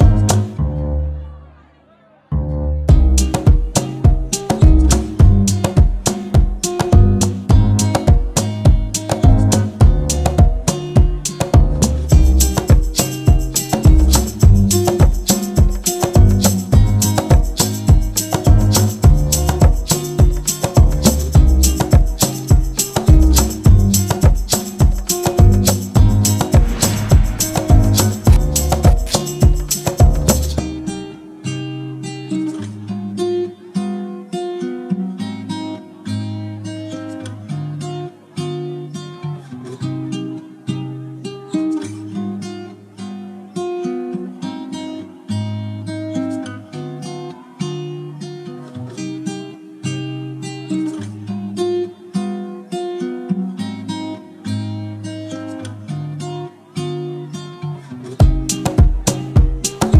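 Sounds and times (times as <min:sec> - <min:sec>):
acoustic guitar melody: 0:00.0 - 0:01.5, 0:02.4 - 0:59.9
heavy drum beats: 0:02.9 - 0:30.6, 0:58.2 - 0:59.9
instrumental background music: 0:02.9 - 0:31.2, 0:58.2 - 0:59.9.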